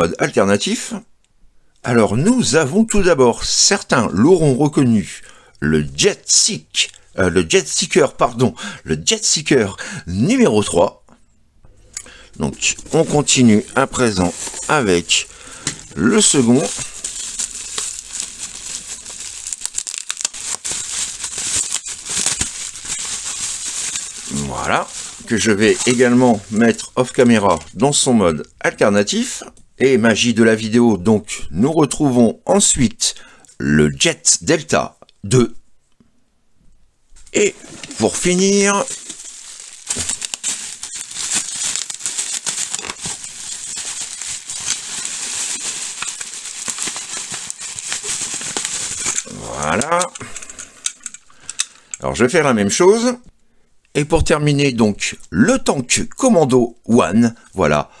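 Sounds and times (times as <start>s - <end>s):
bubble wrap crinkling: 12.0s - 28.2s, 37.2s - 51.8s.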